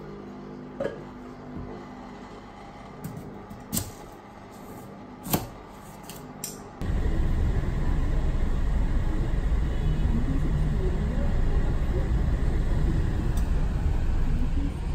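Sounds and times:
vehicle rumble in heavy rain: 6.8s - 14.9s.

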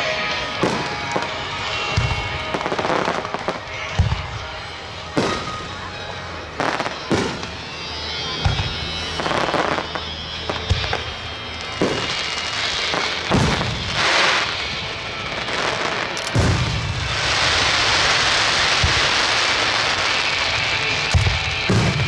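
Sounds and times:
firework shells booming: 13.0s - 14.5s.

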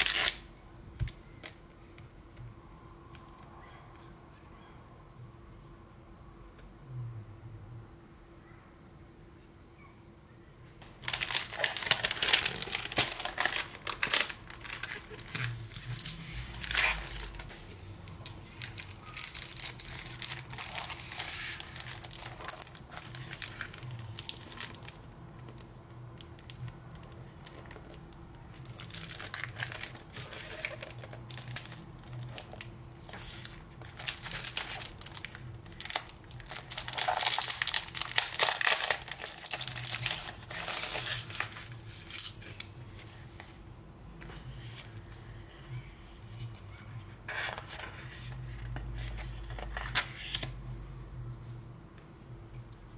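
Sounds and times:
plastic packaging crinkling: 0.0s - 0.4s, 10.8s - 42.7s.

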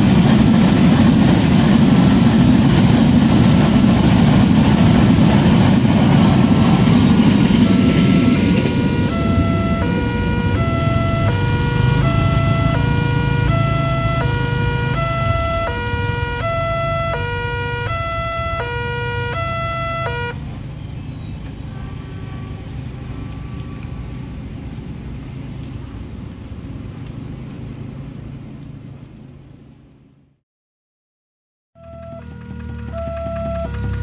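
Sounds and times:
low steady rumble: 0.0s - 30.2s
level crossing two-tone alarm: 7.1s - 20.4s, 31.8s - 34.0s.

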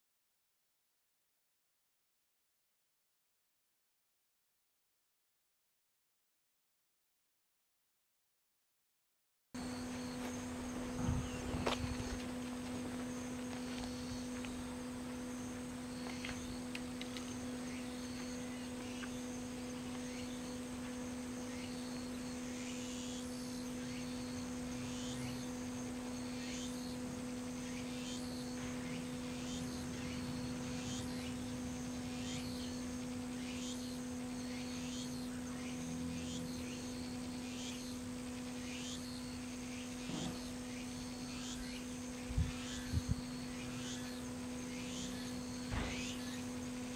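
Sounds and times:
insects trilling: 9.6s - 46.9s
steady low hum: 9.6s - 46.9s.

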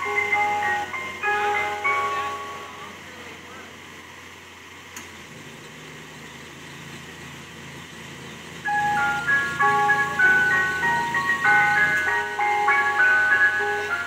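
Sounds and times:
ice cream truck jingle: 0.0s - 4.1s, 8.5s - 14.0s.

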